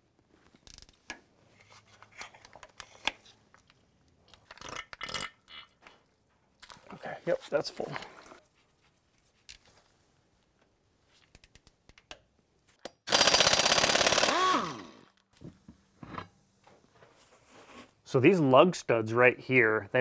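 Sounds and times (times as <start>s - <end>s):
impact wrench rattling: 13.1s - 15.0s.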